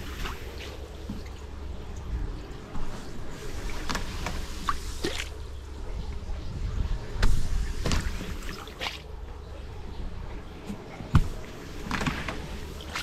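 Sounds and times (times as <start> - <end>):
broom pushing splashing water: 0.0 - 1.5, 2.7 - 5.5, 7.2 - 9.1, 10.7 - 13.0
steady low rumble: 0.0 - 13.0.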